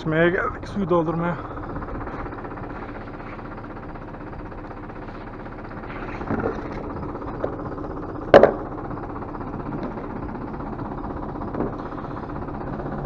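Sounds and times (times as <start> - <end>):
tractor engine running: 0.0 - 13.0.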